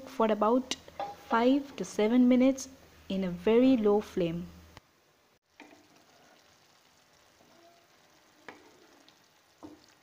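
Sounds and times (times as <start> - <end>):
curry sizzling in a pan: 5.4 - 10.0.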